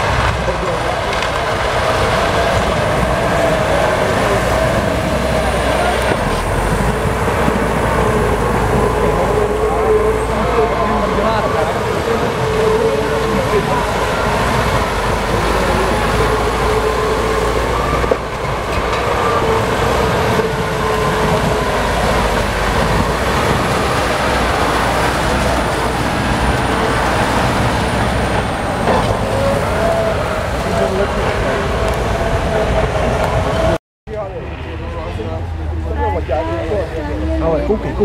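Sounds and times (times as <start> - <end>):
tractor engine under load: 0.0 - 38.0.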